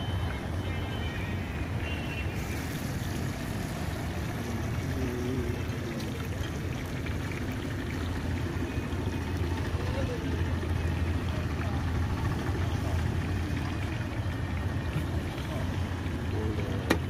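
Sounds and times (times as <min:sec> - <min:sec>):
food sizzling in hot oil: 0:02.2 - 0:04.9.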